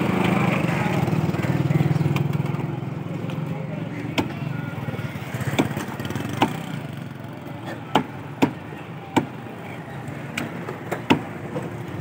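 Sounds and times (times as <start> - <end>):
cleaver chopping on wooden block: 7.9 - 8.6.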